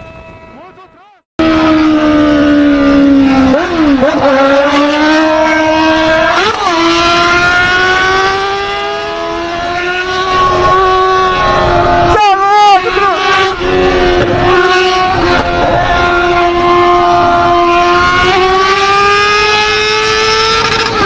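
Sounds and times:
motorcycle engine under load: 0:00.0 - 0:12.1.

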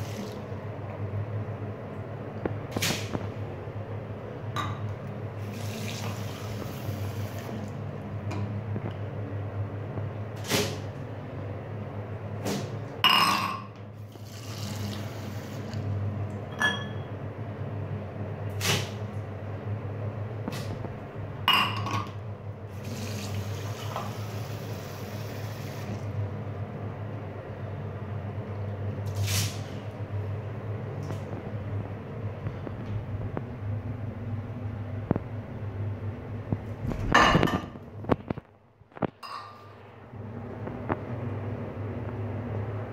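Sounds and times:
steady low hum: 0:00.0 - 0:42.9
cup knocking and clinking: 0:13.1 - 0:13.7, 0:21.5 - 0:22.1.

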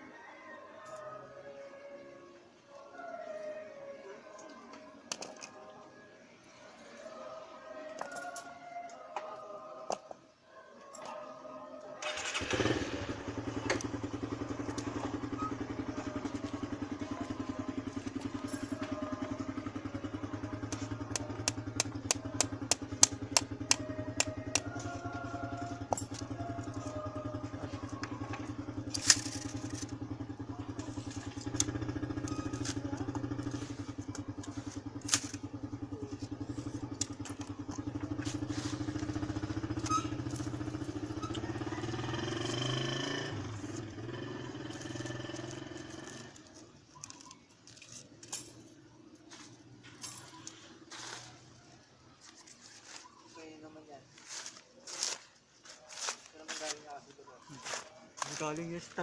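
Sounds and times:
engine idling: 0:12.0 - 0:53.9.

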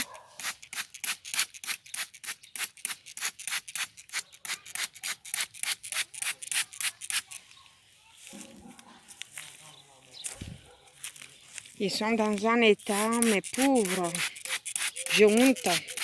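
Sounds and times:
spray bottle hissing squirts: 0:00.0 - 0:07.3, 0:12.9 - 0:16.0.

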